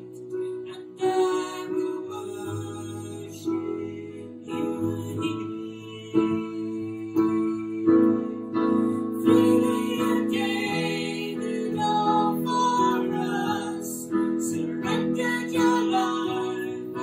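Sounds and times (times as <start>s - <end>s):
woman singing: 0.0s - 17.0s.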